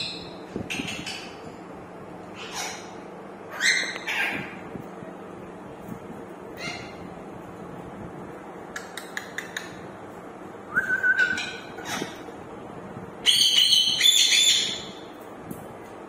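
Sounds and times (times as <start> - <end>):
parakeets calling: 2.3 - 4.6, 6.5 - 7.1, 11.2 - 12.3, 13.2 - 15.1
parakeet whistle: 13.2 - 14.9.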